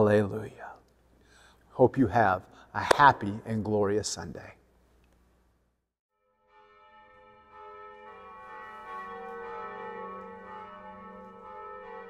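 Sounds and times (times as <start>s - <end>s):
church bells ringing: 6.5s - 12.0s.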